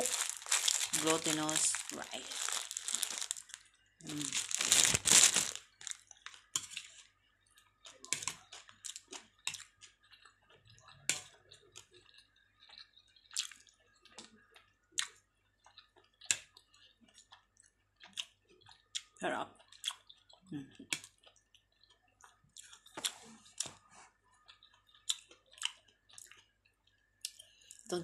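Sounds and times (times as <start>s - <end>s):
plastic bag crinkling: 0.0s - 6.4s
close-up eating sounds: 0.0s - 28.0s.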